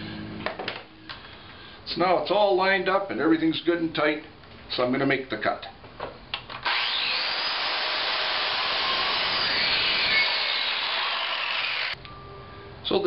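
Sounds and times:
circular saw cutting board: 0:06.7 - 0:12.0.

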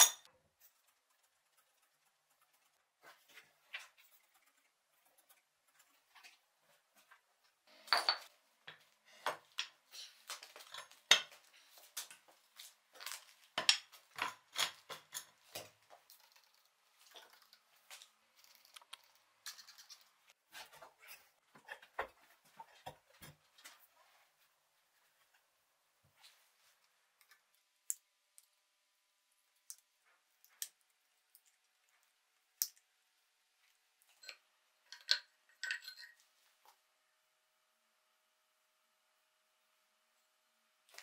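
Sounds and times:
metal vise clinking and knocking: 0:34.2 - 0:36.2.

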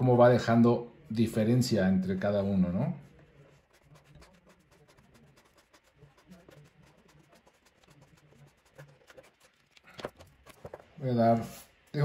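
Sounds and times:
marker scratching on paper: 0:03.5 - 0:10.9.

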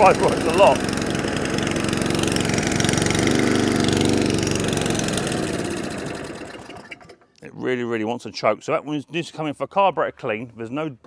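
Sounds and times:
lawnmower engine running: 0:00.0 - 0:07.3.

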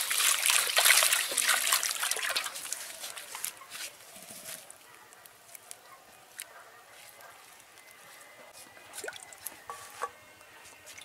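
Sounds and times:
water trickling through net: 0:00.0 - 0:03.6.

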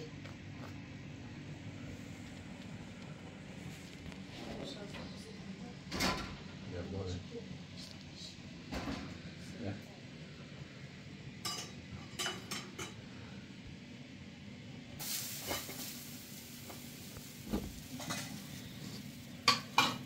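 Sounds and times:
spoon and pots clinking: 0:11.4 - 0:13.0, 0:18.0 - 0:18.5, 0:19.4 - 0:20.0
gas stove hiss: 0:14.9 - 0:20.0.

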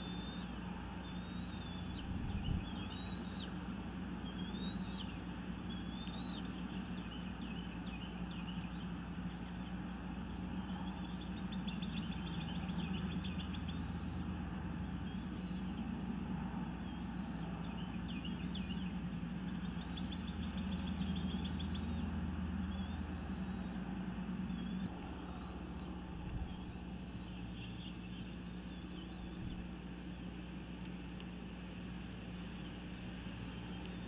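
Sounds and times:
high bird chirps: 0:00.0 - 0:03.5
low rumble and hum: 0:00.0 - 0:34.0.

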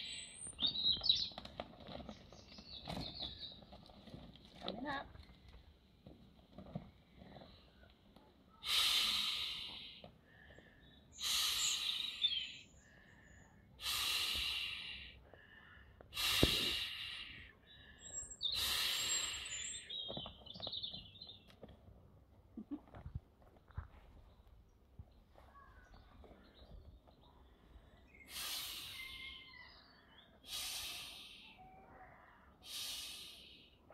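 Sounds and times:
faint bird chirps: 0:25.1 - 0:33.9.

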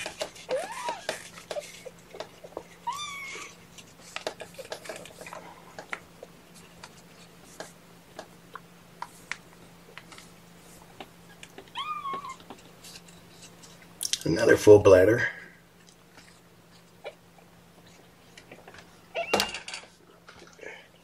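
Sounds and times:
faint steady hum: 0:00.0 - 0:21.0
kitten mewing: 0:02.8 - 0:03.6, 0:11.7 - 0:12.4.

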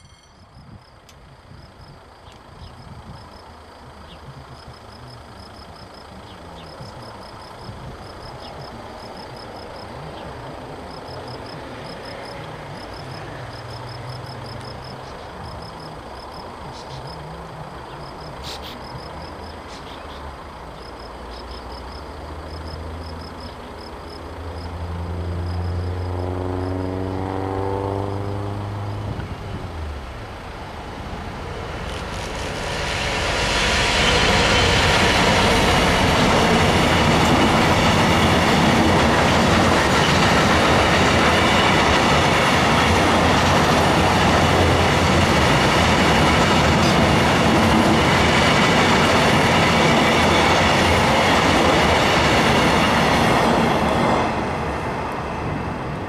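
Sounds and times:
diesel locomotive engine: 0:00.0 - 0:56.0
wheels rumbling on rail: 0:00.0 - 0:56.0.

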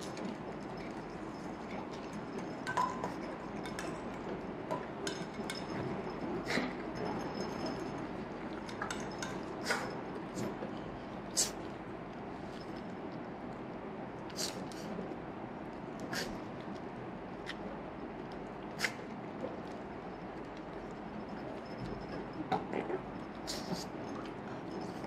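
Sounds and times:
metal dog bowl clinking: 0:00.0 - 0:10.6, 0:21.2 - 0:22.8, 0:23.5 - 0:25.0.

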